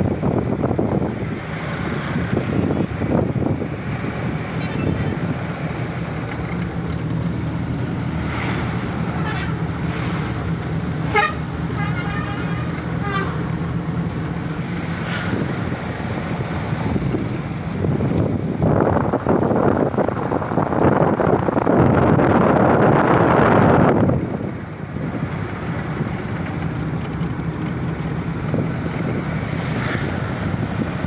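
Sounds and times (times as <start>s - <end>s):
car road and engine noise: 0.0s - 31.0s
vehicle horns tooting: 4.5s - 5.3s, 9.1s - 9.8s, 11.0s - 13.5s.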